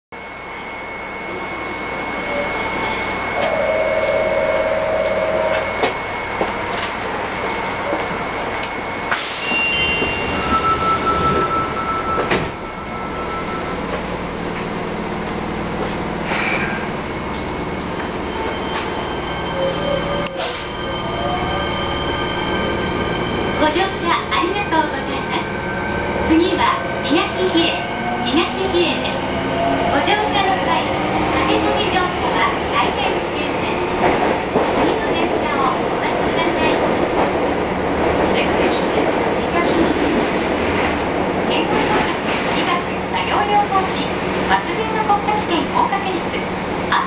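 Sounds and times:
train motor whine: 0:03.4 - 0:06.5.

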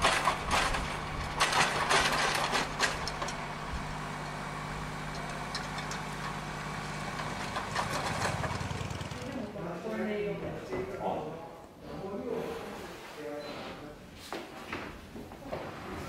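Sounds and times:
tractor engine idling: 0:00.0 - 0:09.6.

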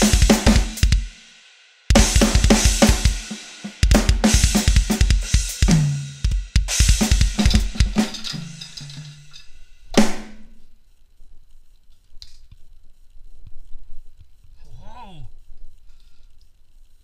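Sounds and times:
electronic drum kit played fast: 0:00.0 - 0:08.6.

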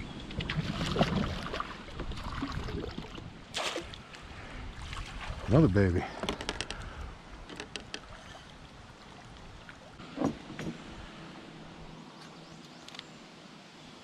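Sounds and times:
fishing gear clicking and rattling: 0:06.1 - 0:08.1.

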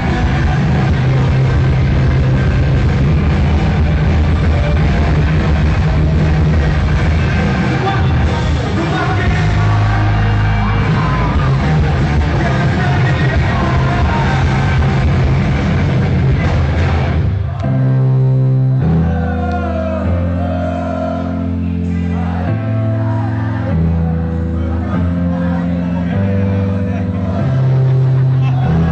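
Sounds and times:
rock band playing live: 0:00.0 - 0:28.9
man singing: 0:06.6 - 0:15.3.

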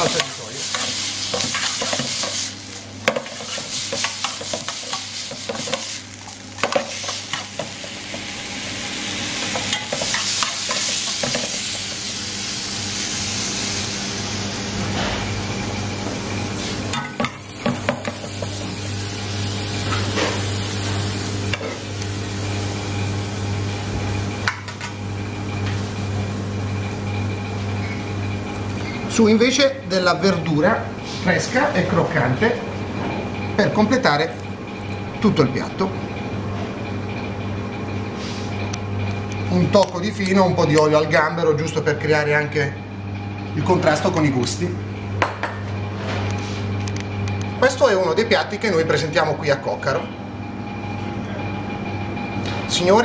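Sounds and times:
vegetables sizzling in hot oil: 0:00.0 - 0:14.8, 0:16.6 - 0:23.7
steady low hum: 0:00.0 - 0:53.0.

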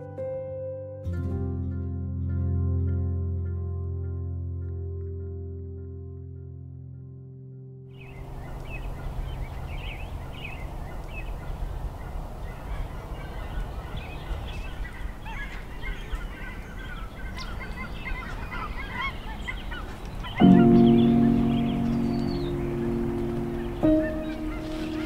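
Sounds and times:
birds chirping and singing: 0:08.0 - 0:25.0.

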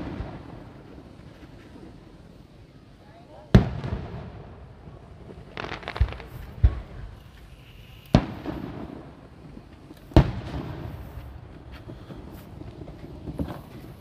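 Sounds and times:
sharp firework booms with echo: 0:00.0 - 0:01.1, 0:03.5 - 0:07.2, 0:08.1 - 0:14.0
firework crackling: 0:00.0 - 0:14.0.

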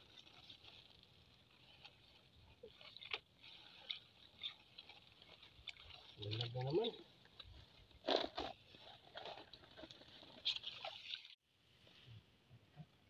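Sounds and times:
rustling of grass and mud: 0:00.0 - 0:11.2.

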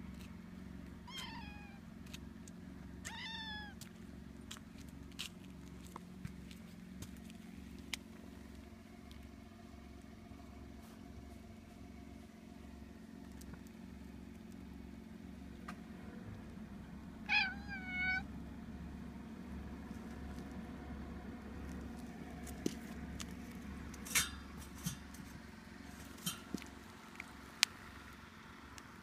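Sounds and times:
cat meowing: 0:01.1 - 0:01.8, 0:03.0 - 0:03.8, 0:17.3 - 0:18.3.

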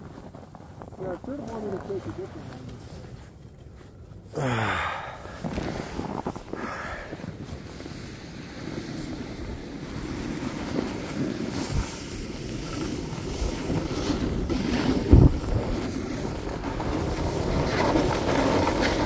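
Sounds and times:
skis hissing over snow: 0:04.6 - 0:19.0
wind on microphone: 0:05.2 - 0:19.0.

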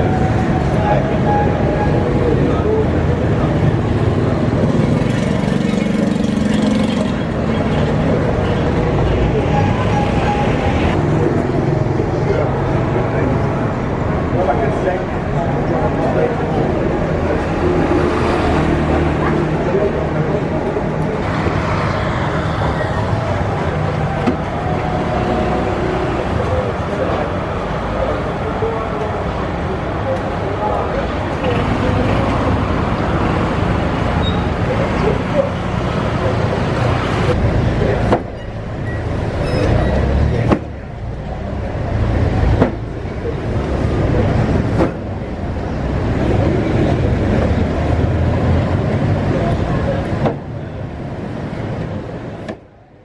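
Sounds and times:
scooters and cars passing: 0:00.0 - 0:53.0
street traffic rumble: 0:00.0 - 0:53.0.

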